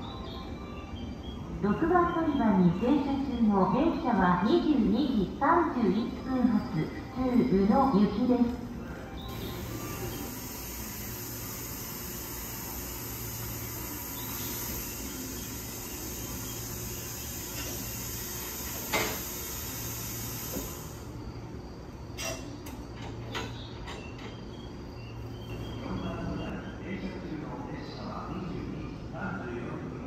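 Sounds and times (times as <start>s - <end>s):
electric train humming: 0.0s - 30.0s
steady high hiss: 9.3s - 21.6s.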